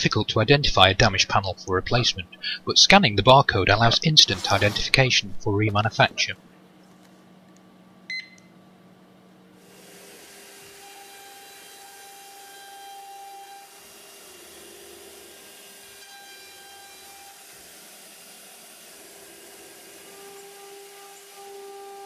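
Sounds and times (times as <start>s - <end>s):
router machine hissing: 3.7s - 5.2s, 9.6s - 22.0s
whining spindle tones: 18.9s - 22.0s.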